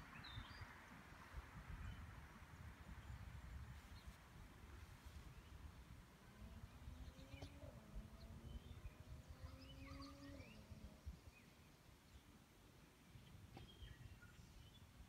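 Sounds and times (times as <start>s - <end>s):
distant bird chirps: 6.6s - 12.4s.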